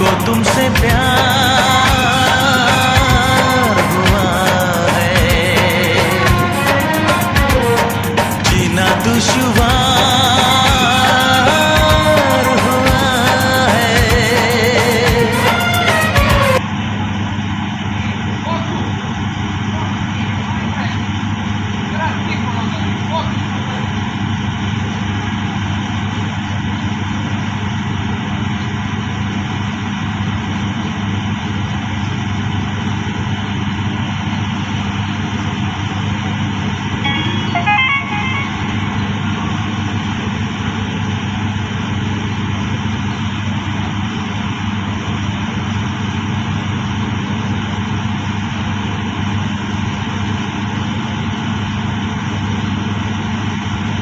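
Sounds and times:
drilling rig machinery drone: 0.0 - 54.0.

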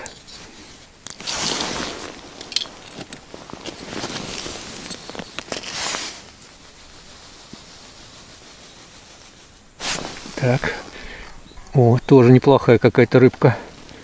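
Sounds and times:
clothing rustling: 1.2 - 11.1.

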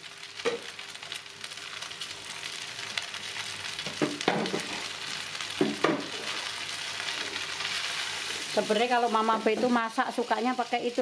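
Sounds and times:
noodles sizzling in a wok: 0.0 - 11.0.

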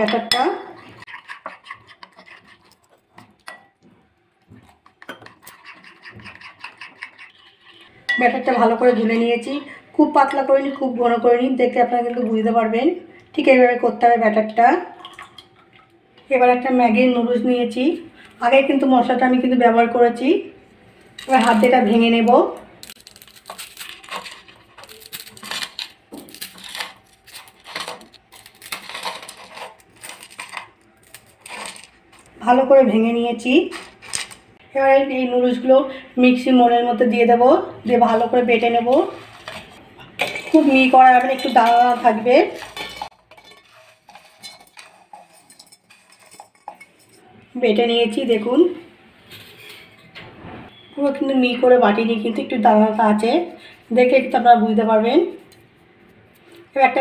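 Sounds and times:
spoon clinking and scraping glass bowl: 0.0 - 3.8, 4.6 - 8.5, 38.9 - 47.3
dry noodles crackling and snapping: 22.8 - 32.3.

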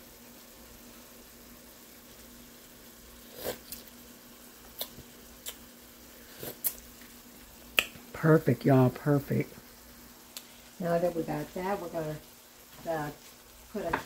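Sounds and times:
soup simmering: 0.0 - 14.0
person slurping: 3.2 - 3.9, 6.2 - 6.8
lip smacks: 4.7 - 5.7, 6.4 - 7.1, 7.7 - 8.0.

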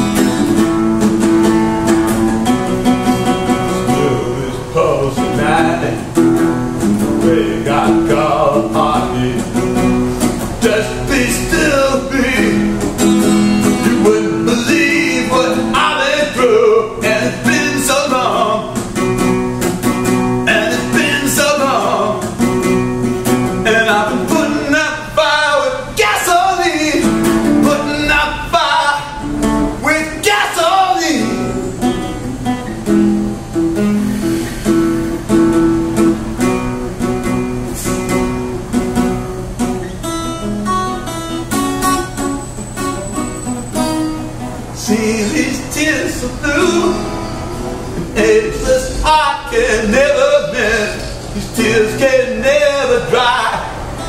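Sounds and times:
strummed acoustic guitar: 0.0 - 54.0
man singing: 3.5 - 6.2, 7.0 - 19.0, 20.3 - 22.7, 23.5 - 31.6, 44.8 - 47.4, 48.0 - 53.8.

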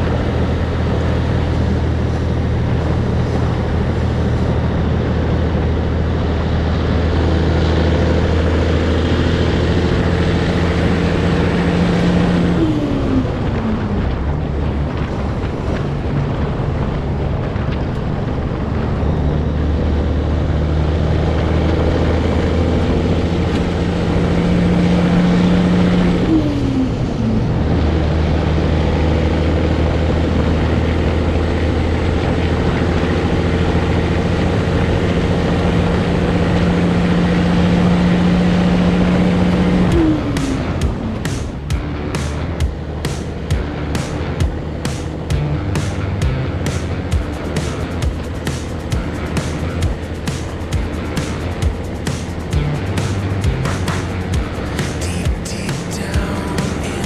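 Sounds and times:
truck diesel engine running: 0.0 - 57.0.

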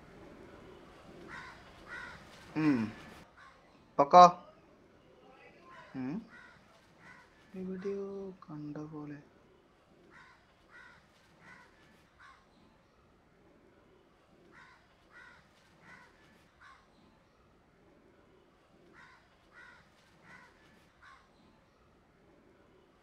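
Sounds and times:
crow cawing faintly: 0.0 - 4.0, 5.6 - 8.8, 9.9 - 12.8, 14.3 - 17.3, 18.7 - 21.8.

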